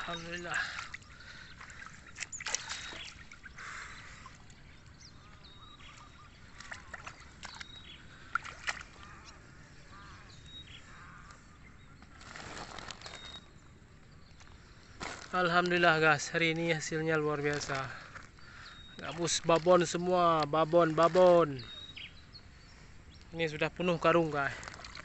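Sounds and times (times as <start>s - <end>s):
water splashes: 0.0s - 9.3s, 24.3s - 25.0s.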